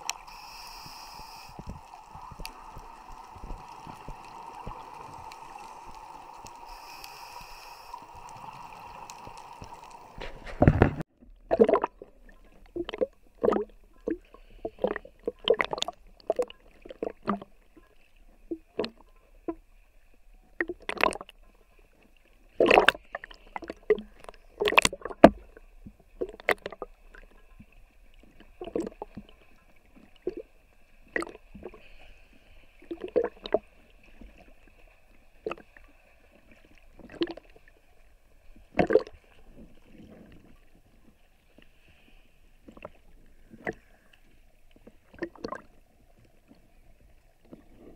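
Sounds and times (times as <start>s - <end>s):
muffled underwater hum: 0.0s - 11.0s
waves splashing against camera: 0.0s - 11.0s.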